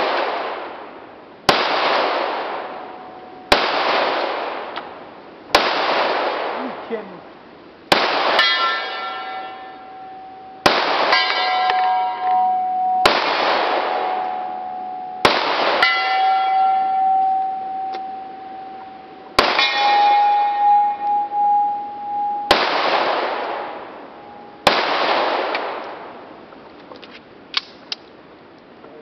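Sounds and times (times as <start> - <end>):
pistol shots: 1.5 - 2.9, 3.5 - 4.8, 5.5 - 6.7, 7.9 - 9.8, 10.6 - 12.4, 13.0 - 14.3, 15.2 - 17.0, 19.4 - 21.3, 21.9 - 24.0, 24.6 - 26.1
steel target ringing: 1.5 - 4.2, 7.9 - 25.8.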